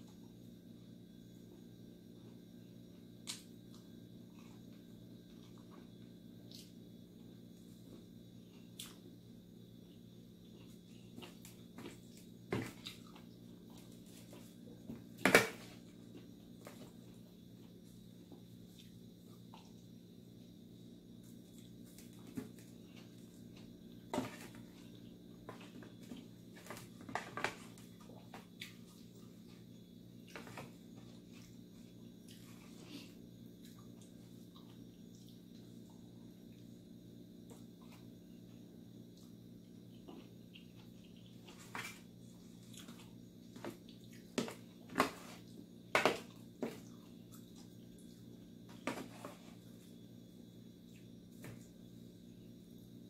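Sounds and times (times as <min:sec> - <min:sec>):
person eating by hand: 0:03.2 - 0:14.9.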